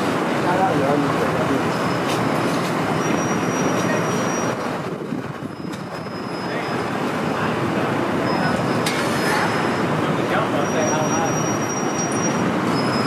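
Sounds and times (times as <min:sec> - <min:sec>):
city street noise: 0:00.0 - 0:13.0
high-pitched squeals: 0:10.6 - 0:13.0.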